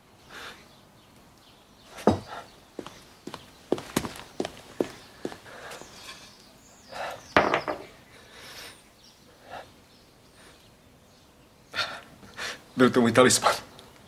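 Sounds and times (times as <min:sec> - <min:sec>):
footsteps on hard floor: 0:02.1 - 0:05.4.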